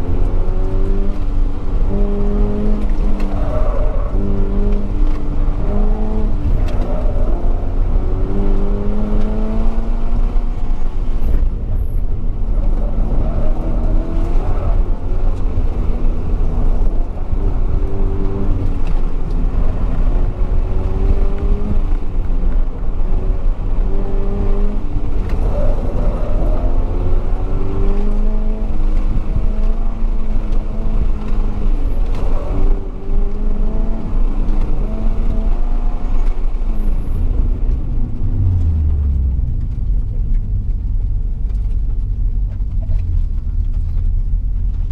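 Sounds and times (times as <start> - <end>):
car engine revving: 0.0 - 44.9.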